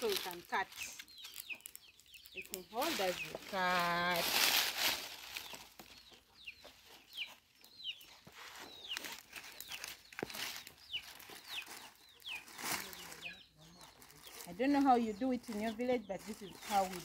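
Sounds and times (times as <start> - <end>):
chickens chirping: 0.0 - 17.0.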